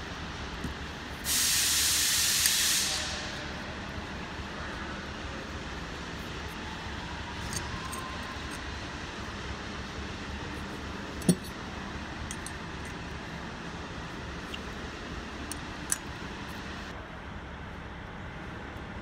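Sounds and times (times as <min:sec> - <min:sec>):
low background noise: 0:00.0 - 0:19.0
metal parts clinking: 0:07.4 - 0:08.6, 0:11.1 - 0:13.0
sharp metal clunk: 0:11.2 - 0:11.6.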